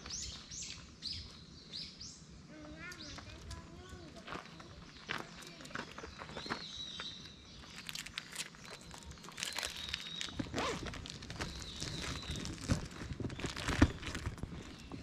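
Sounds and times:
footsteps crunching on trail: 0:03.0 - 0:15.0.

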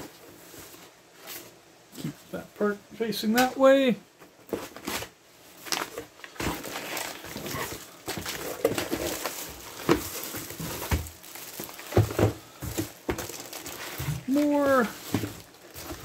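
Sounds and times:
plastic packaging rustling: 0:04.4 - 0:16.0.

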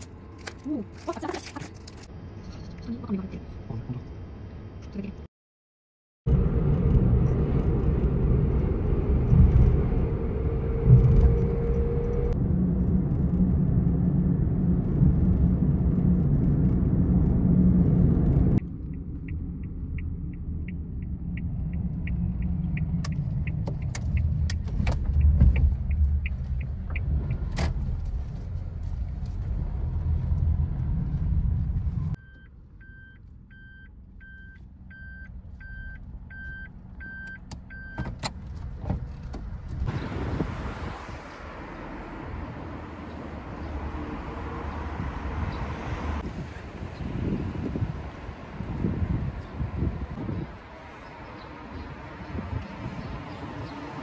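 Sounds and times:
car road and engine noise: 0:00.0 - 0:05.3, 0:06.3 - 0:54.0
turn signal ticking: 0:18.6 - 0:28.1, 0:32.1 - 0:38.4.

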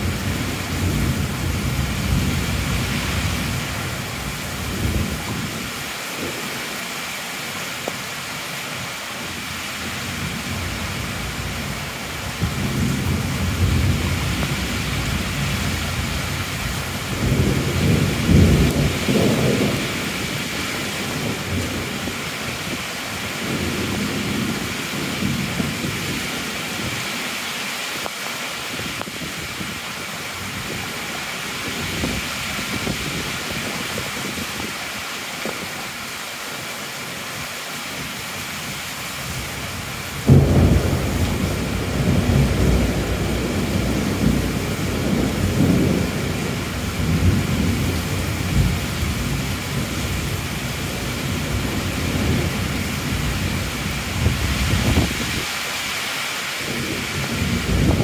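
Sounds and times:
heavy rain falling: 0:00.0 - 0:58.0
thunder crack and rumble: 0:12.4 - 0:22.2, 0:40.2 - 0:55.4, 0:56.7 - 0:58.0.

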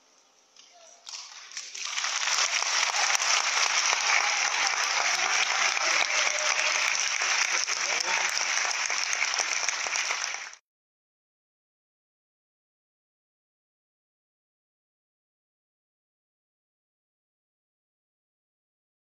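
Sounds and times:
audience applauding: 0:01.1 - 0:10.6.

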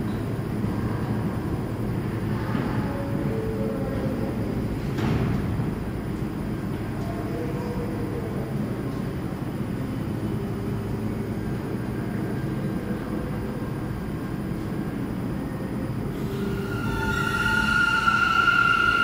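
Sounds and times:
subway train rumble and hum: 0:00.0 - 0:19.0
rising electric whine: 0:16.1 - 0:19.0.

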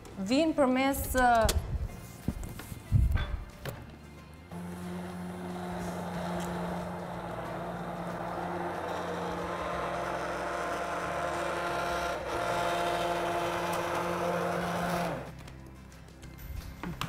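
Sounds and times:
immersion blender running: 0:04.5 - 0:15.3.

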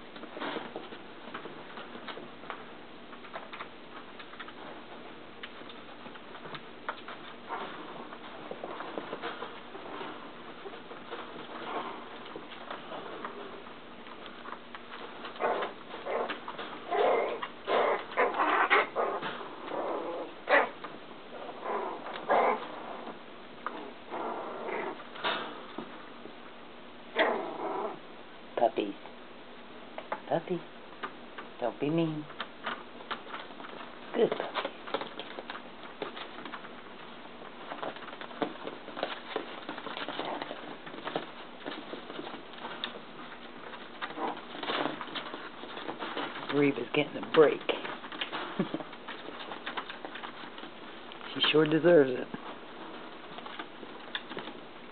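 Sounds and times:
paws tapping on hard floor: 0:00.0 - 0:26.4, 0:31.0 - 0:31.6, 0:32.3 - 0:54.9
puppies grunting and growling: 0:06.3 - 0:25.9, 0:27.1 - 0:28.2, 0:32.5 - 0:54.9
puppies yipping and barking: 0:15.4 - 0:20.8.

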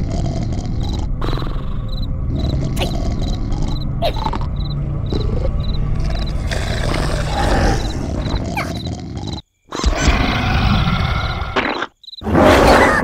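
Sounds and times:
low rasping growl-like rumble: 0:00.0 - 0:09.4.

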